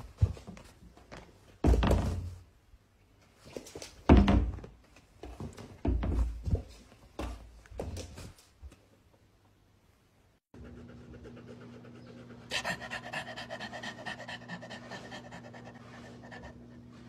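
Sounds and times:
puppy thumping and knocking: 4.1 - 4.7.

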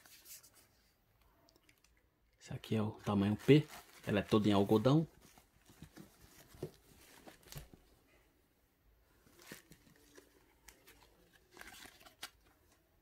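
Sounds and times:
fabric and plastic bag rustling: 3.0 - 7.9.

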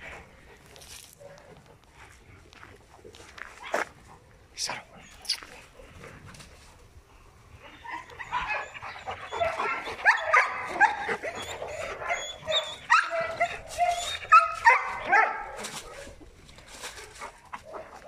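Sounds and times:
dog barking: 8.3 - 16.1.

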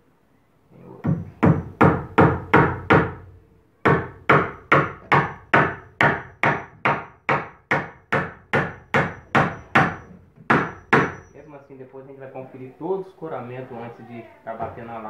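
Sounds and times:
hammer striking nail into wood: 1.0 - 11.3.

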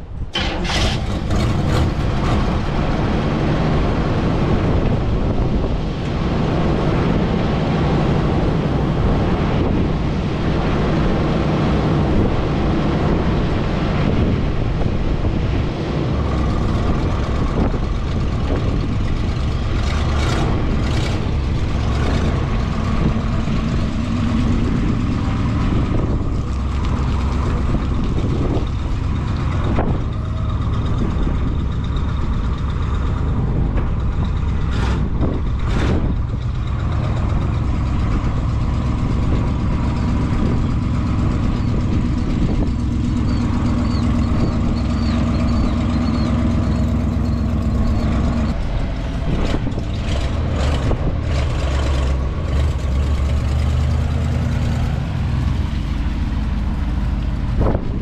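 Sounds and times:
motorhome engine running: 0.0 - 58.0.

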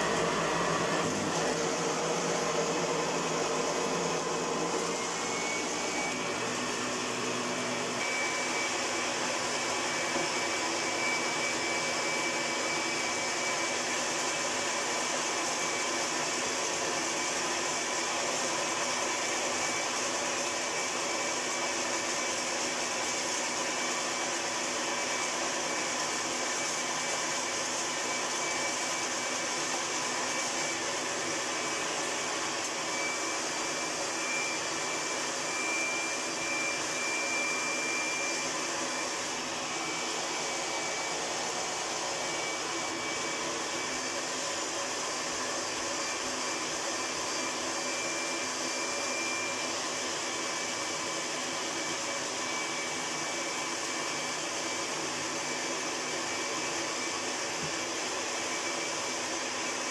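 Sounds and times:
vacuum cleaner running: 0.0 - 59.9.

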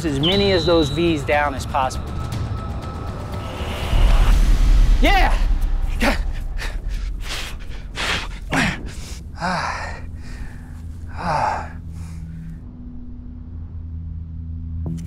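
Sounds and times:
man breathing heavily: 5.8 - 12.7.

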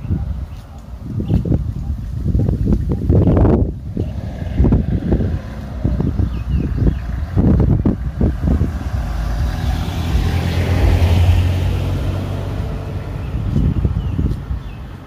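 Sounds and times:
wind bumps on microphone: 0.0 - 15.0
minivan driving past: 3.8 - 14.2.

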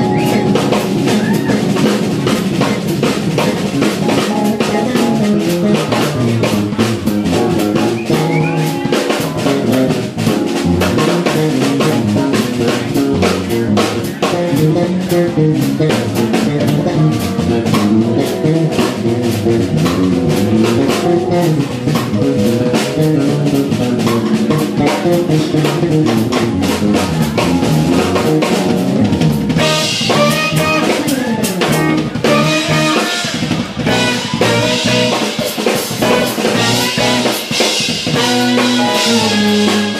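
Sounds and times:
drum kit: 0.0 - 39.9
electric bass: 0.0 - 39.9
electric guitar: 0.0 - 39.9
keyboard: 0.0 - 39.9
saxophone: 14.4 - 39.9.

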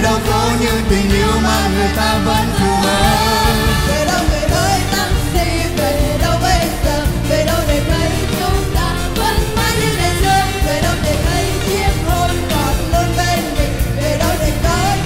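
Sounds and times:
live pop band playing: 0.0 - 15.0.

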